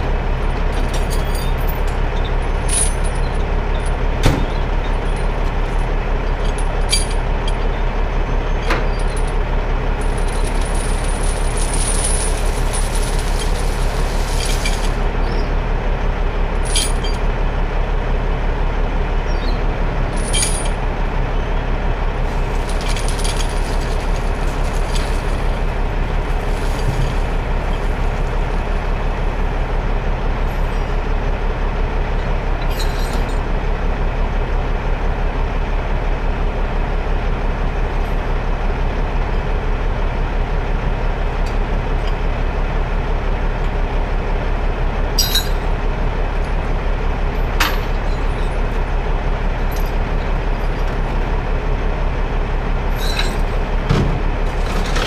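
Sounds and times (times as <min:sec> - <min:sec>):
diesel engine running: 0:00.0 - 0:55.0
short metal clinks: 0:45.2 - 0:45.6, 0:53.0 - 0:53.5.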